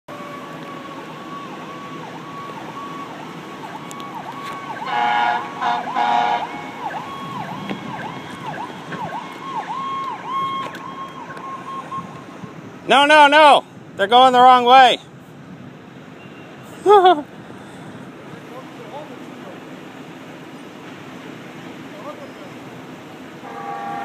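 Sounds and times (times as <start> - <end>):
emergency vehicle sirens: 0.1 - 15.0
loud horn blasts: 4.8 - 6.8, 23.4 - 24.0.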